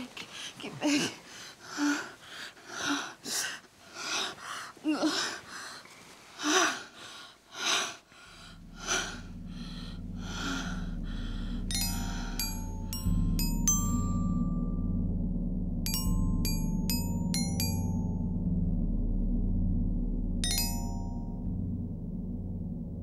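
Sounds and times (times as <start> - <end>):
person panting and gasping: 0.3 - 13.0
low moan: 8.3 - 14.4
low music drone: 8.3 - 23.0
bell-like chiming notes: 11.3 - 15.2, 15.8 - 18.5, 20.4 - 21.6.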